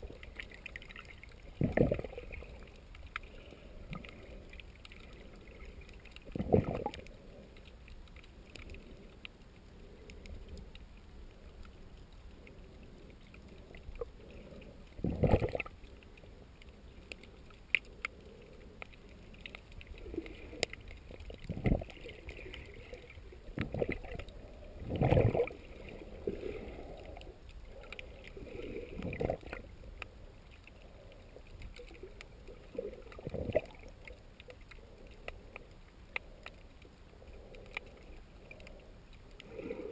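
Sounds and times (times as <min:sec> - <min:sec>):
muffled underwater water whooshes: 0:19.9 - 0:27.4.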